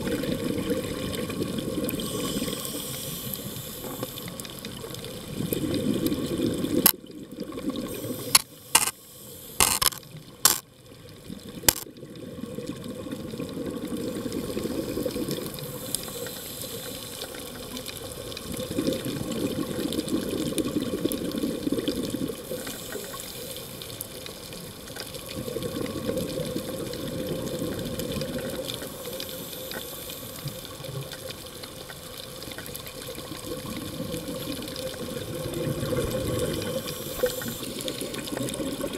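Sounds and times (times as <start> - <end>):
underwater exhaled bubbles: 0.0 - 38.9
sharp clicks: 8.3 - 9.0, 9.6 - 10.6.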